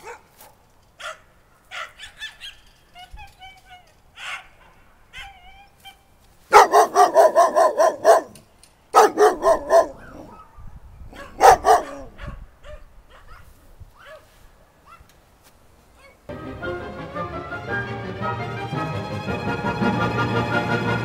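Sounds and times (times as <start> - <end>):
dog barking: 0.0 - 2.5, 4.2 - 5.4, 6.5 - 15.1.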